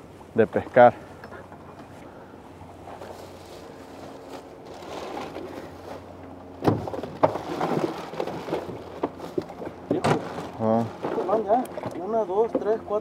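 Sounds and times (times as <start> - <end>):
faint steady hum: 0.0 - 13.0
ice and plastic rustling: 3.0 - 6.1, 6.8 - 11.6
fish knocking in a cooler: 6.6 - 12.8.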